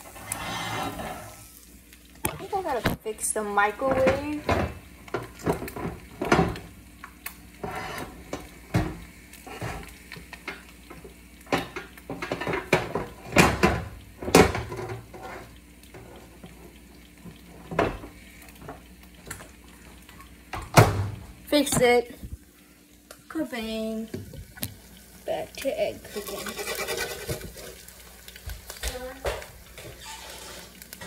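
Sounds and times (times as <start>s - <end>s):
knocks and clatter at microwave: 3.8s - 6.7s, 11.5s - 15.0s, 20.5s - 21.9s.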